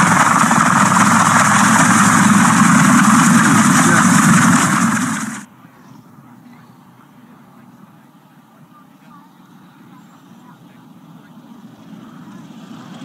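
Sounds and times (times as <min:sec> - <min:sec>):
helicopter rotor noise: 0:00.0 - 0:05.5
helicopter turbine whine: 0:00.0 - 0:05.5.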